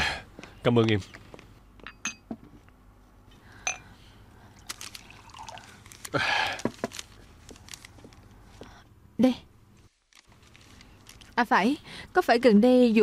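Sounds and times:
glass clinking: 1.8 - 2.4, 3.6 - 3.9.

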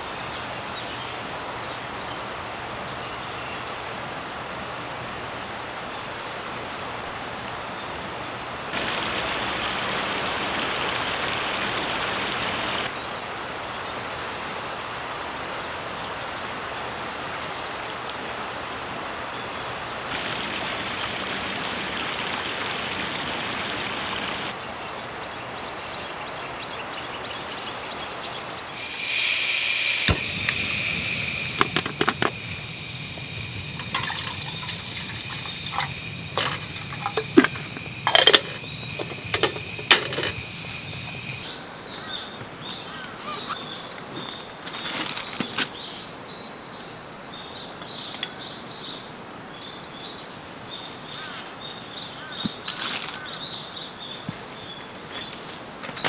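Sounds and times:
birds chirping: 0.0 - 16.7, 19.3 - 44.8
gas burner rumbling: 8.8 - 12.9, 20.1 - 24.6, 28.8 - 41.5
gas hissing: 8.8 - 12.9, 20.1 - 24.5, 28.8 - 41.5
kettle lid clinking: 28.9 - 41.4.

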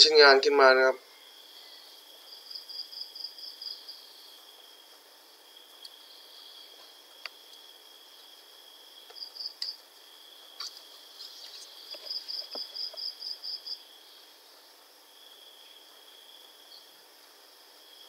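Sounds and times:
insects chirping: 0.0 - 18.0.

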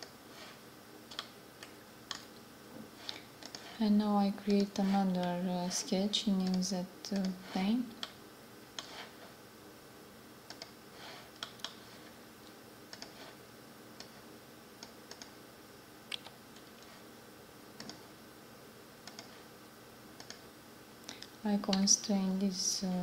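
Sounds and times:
faint steady hum: 0.0 - 23.0
computer mouse clicks: 1.1 - 2.4, 3.0 - 3.8, 6.4 - 8.2, 10.5 - 10.8, 11.4 - 11.8, 12.9 - 13.3, 14.0 - 14.2, 14.8 - 15.4, 17.8 - 18.1, 19.0 - 19.4, 20.2 - 20.4.

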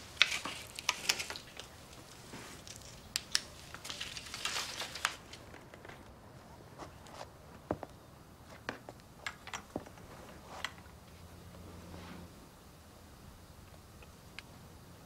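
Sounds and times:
paper rustling and crinkling: 0.0 - 6.2.

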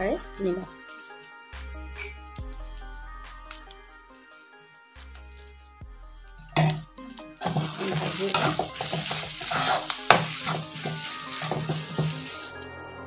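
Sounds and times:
frying sizzle: 0.0 - 13.0
spoon scraping in pan: 6.5 - 12.6.

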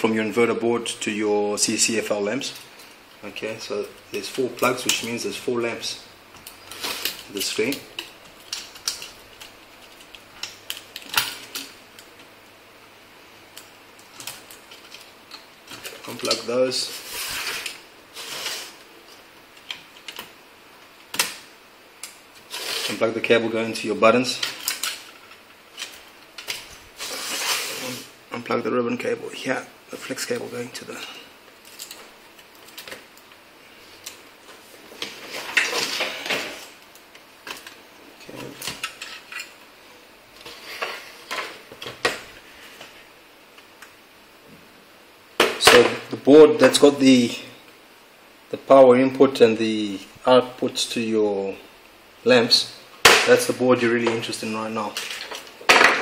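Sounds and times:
rustling: 24.4 - 28.2.

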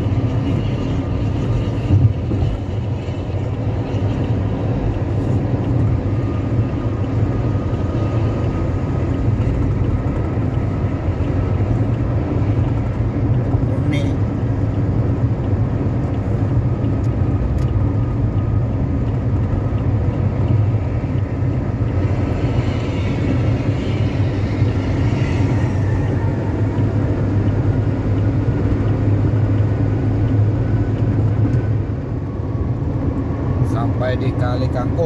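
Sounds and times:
car engine rumble: 0.0 - 35.0.

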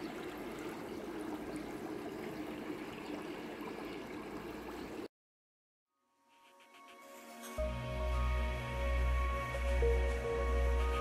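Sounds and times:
water running and trickling: 0.0 - 5.1.

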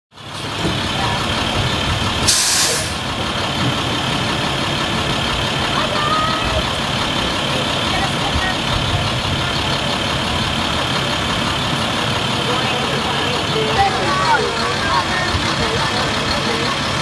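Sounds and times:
bus engine idling: 0.1 - 17.0
air brake hiss: 2.3 - 3.0.

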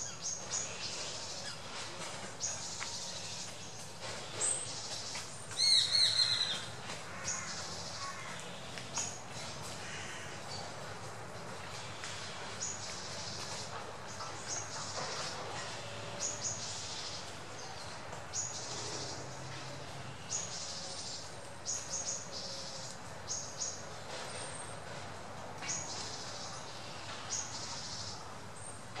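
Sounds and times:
steady outdoor hiss: 0.0 - 29.0.

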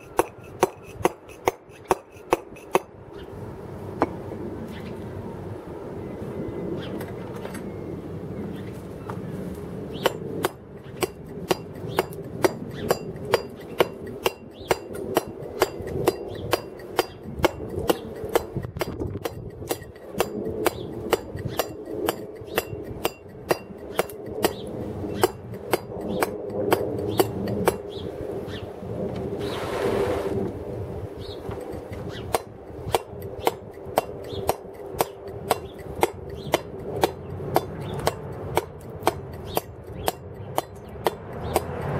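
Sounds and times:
mallet striking chisel on stone: 0.0 - 2.9, 10.0 - 24.6.

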